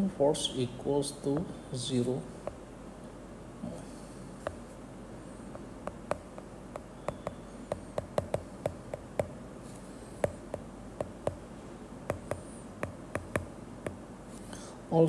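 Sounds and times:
faint background hiss: 0.0 - 15.0
stylus tapping on glass screen: 4.4 - 4.6, 5.5 - 9.4, 10.2 - 11.4, 12.1 - 14.0.

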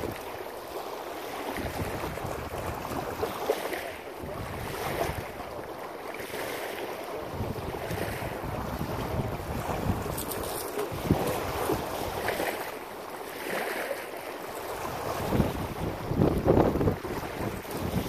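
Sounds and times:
wind gusts on microphone: 0.0 - 0.3, 1.4 - 5.6, 7.2 - 12.7, 14.6 - 18.0
waves washing on rocky shore: 0.0 - 18.0.

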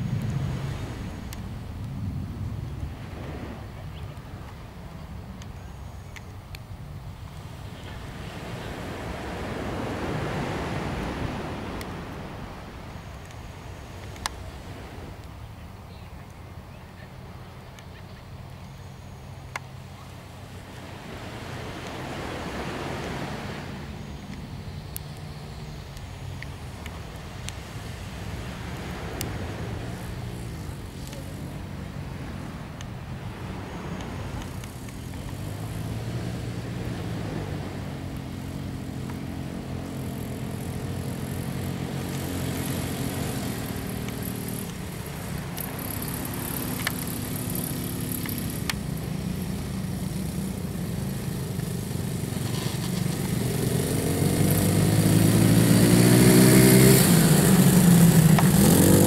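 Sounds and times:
quad bike engines revving: 24.2 - 59.0.

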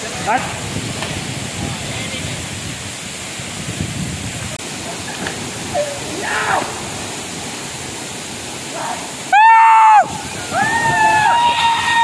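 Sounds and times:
waterfall rushing onto rock: 0.0 - 12.0.

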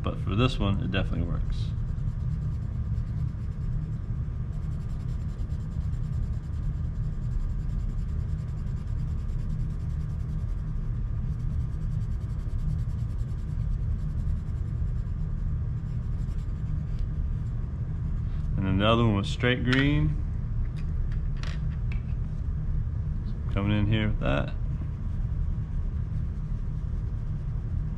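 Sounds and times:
pencil scribbling on paper: 1.6 - 18.2, 25.0 - 27.9.

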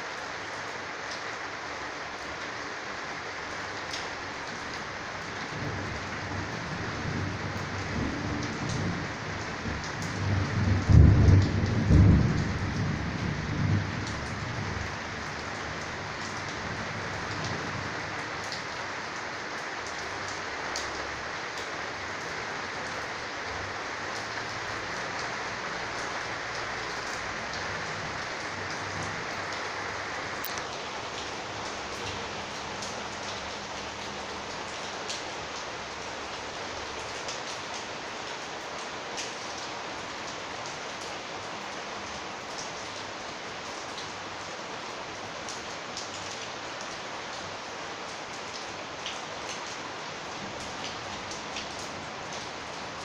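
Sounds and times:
heavy rain on a metal roof: 0.0 - 53.0.

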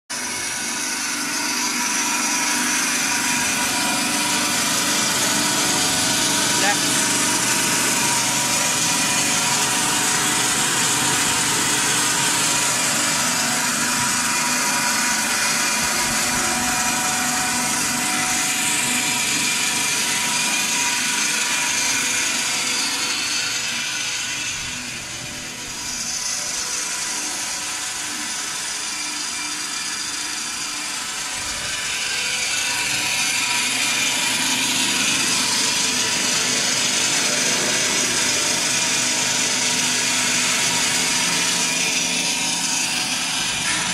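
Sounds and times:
machine motors whirring: 0.2 - 43.9.

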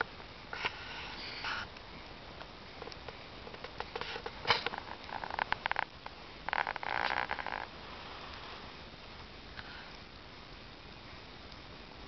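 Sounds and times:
bonfire crackling: 0.0 - 12.0
burning wood hissing: 0.0 - 12.0
burning wood popping: 1.4 - 8.5.

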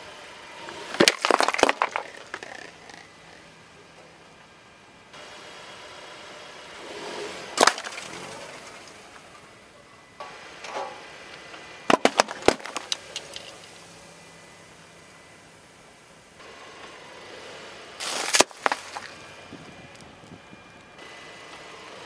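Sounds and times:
cans crushed under car tyre: 0.7 - 3.4, 7.5 - 9.0, 11.9 - 13.8, 18.0 - 19.2
cans bursting with sharp cracks: 0.9 - 3.3, 11.9 - 13.7, 18.0 - 19.1.

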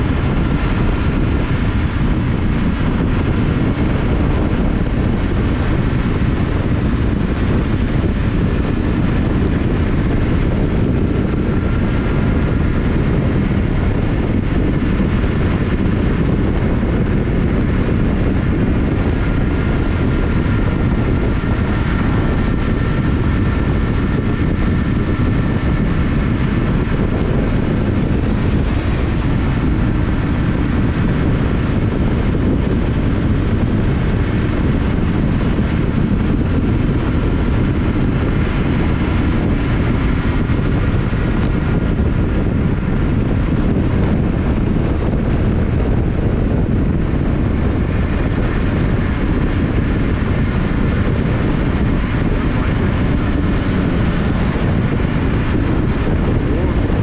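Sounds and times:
motorcycle engine cruising: 0.0 - 57.0
wind rushing on microphone: 0.0 - 57.0.

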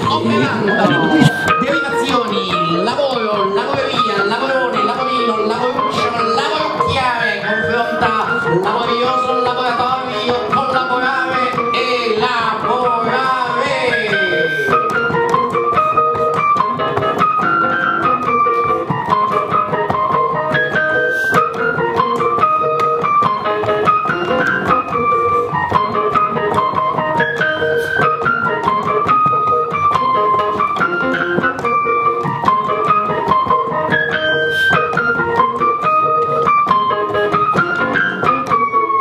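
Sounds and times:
held low keyboard notes: 0.0 - 2.7
electric keyboard melody: 0.0 - 6.8, 14.3 - 39.0.

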